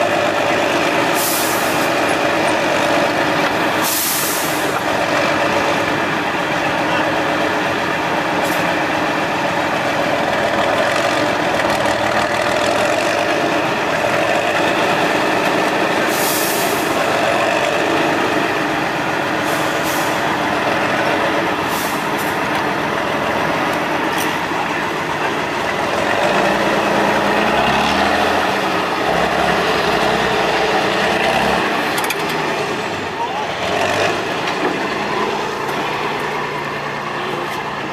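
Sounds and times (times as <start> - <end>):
truck diesel engine under load: 0.0 - 37.9
air hiss bursts: 3.8 - 4.7, 16.1 - 16.8.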